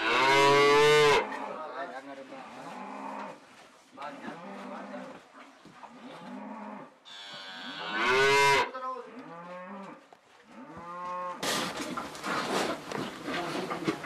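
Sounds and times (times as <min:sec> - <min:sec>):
calves mooing: 0:00.0 - 0:01.8, 0:05.9 - 0:11.4.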